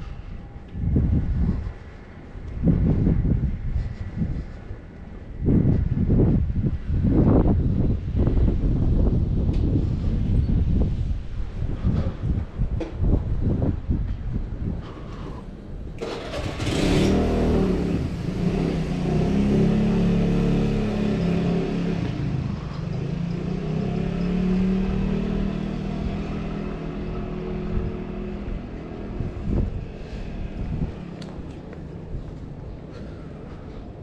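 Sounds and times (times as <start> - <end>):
motor scooter engine accelerating: 16.0 - 29.9.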